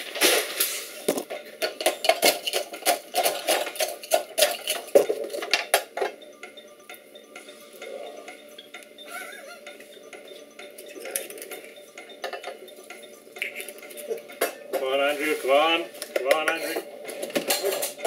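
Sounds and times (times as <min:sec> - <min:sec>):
glass and utensils clinking: 0:01.4 - 0:06.2, 0:10.7 - 0:14.9.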